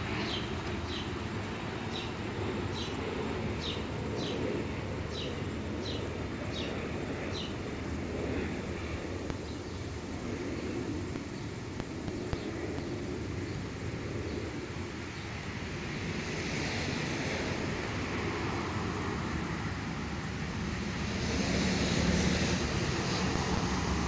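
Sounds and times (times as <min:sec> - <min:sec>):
wind rushing on microphone: 0:00.0 - 0:24.0.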